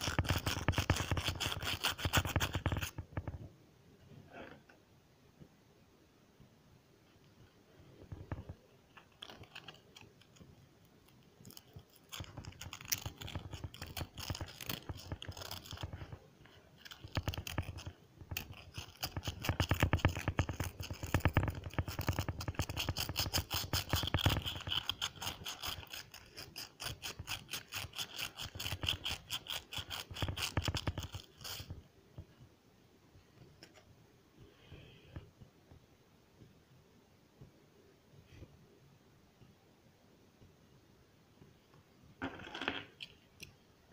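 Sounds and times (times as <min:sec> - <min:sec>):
scrubbing a metal key: 0:11.4 - 0:16.1, 0:16.8 - 0:31.7.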